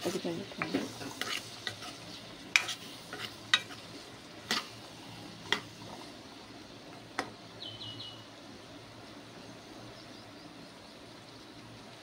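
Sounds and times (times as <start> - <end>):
vegetables frying in oil: 0.0 - 9.4.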